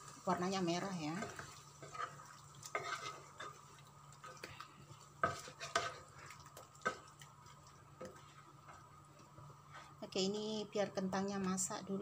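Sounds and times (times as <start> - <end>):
wooden spatula scraping a pan: 0.0 - 7.1, 8.0 - 10.2
thick curry sauce stirring: 1.2 - 10.0.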